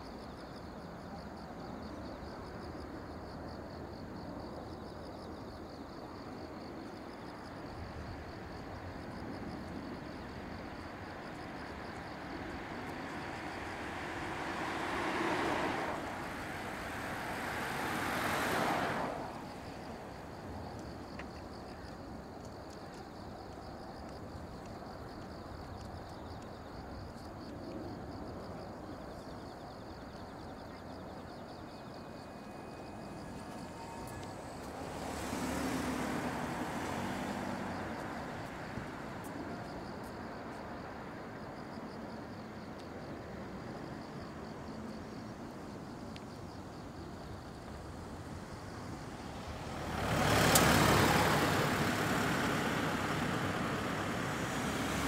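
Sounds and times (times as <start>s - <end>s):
faint insect chirring: 0.0s - 40.8s
road vehicles rushing past: 9.9s - 21.6s, 32.2s - 42.5s, 43.4s - 55.0s
distant jet rumble: 11.4s - 21.1s.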